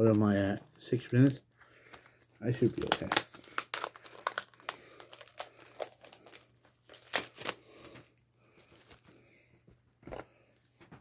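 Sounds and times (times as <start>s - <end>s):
foil wrapper crinkling: 0.0s - 9.2s.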